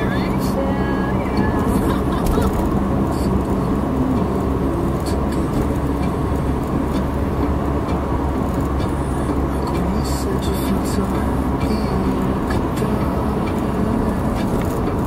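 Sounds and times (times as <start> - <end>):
in-cabin road and tyre noise: 0.0 - 15.0
low engine hum: 0.0 - 15.0.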